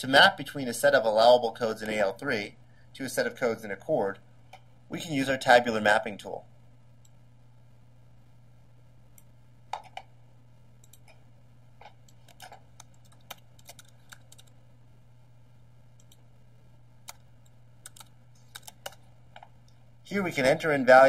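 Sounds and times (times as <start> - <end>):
steady low hum: 0.0 - 21.0
computer keyboard keystrokes: 11.9 - 14.6, 17.0 - 19.5.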